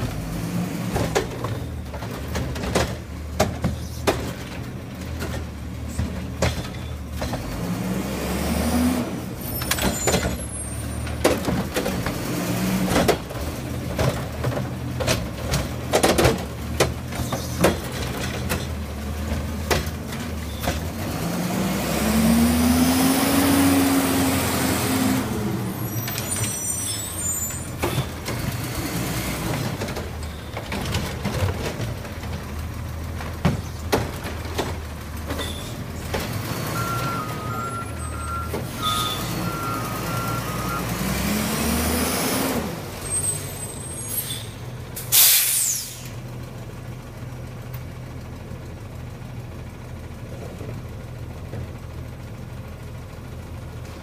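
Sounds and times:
garbage truck diesel engine revving: 0.0s - 45.2s
metal clanks of carts: 0.8s - 7.6s, 9.4s - 21.0s, 25.7s - 40.7s
air brakes hissing: 43.2s - 46.2s.

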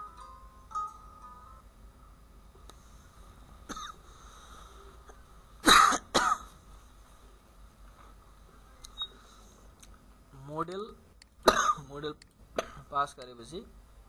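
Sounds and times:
person coughing: 3.7s - 4.0s, 5.1s - 6.5s, 11.5s - 11.9s, 12.6s - 12.9s.

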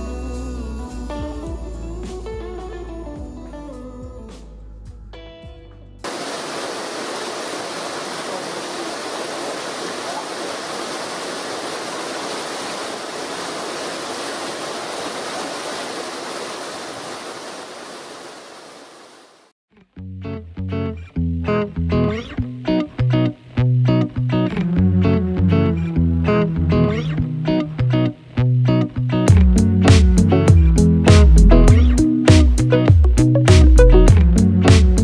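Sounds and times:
creek water rushing over rocks: 6.1s - 19.5s.

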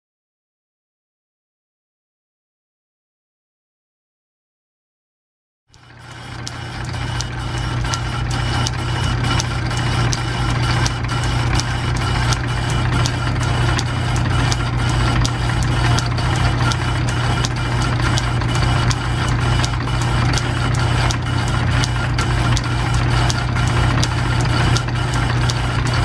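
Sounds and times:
sharp lathe ticking: 5.7s - 26.0s
metal lathe humming: 5.8s - 26.0s.

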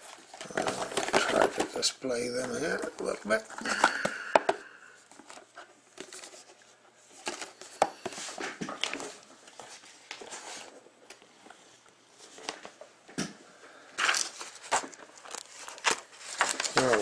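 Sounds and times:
plastic wrap crinkling: 0.0s - 4.2s, 14.0s - 17.0s.

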